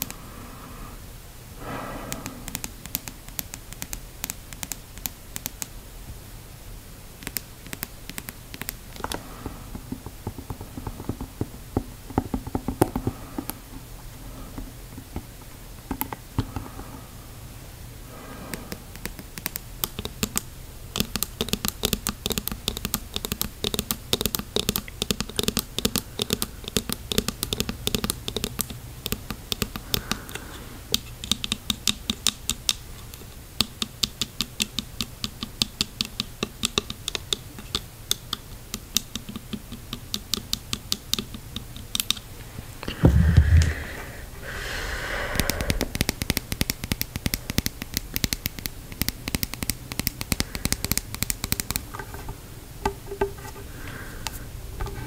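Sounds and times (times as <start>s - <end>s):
fingernails tapping on plastic: 7.2s - 13.6s, 18.6s - 42.2s, 45.4s - 52.1s
low thump: 43.0s - 44.0s.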